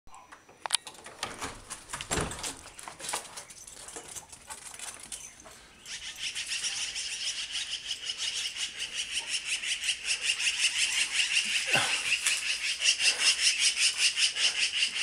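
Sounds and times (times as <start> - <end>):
magpies calling: 5.1 - 15.0.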